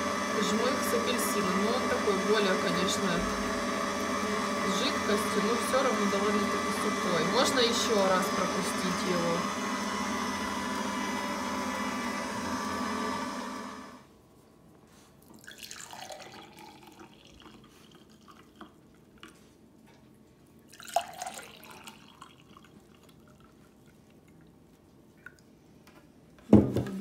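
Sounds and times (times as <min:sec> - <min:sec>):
juice pouring into glass: 0:15.4 - 0:19.1, 0:20.7 - 0:24.5.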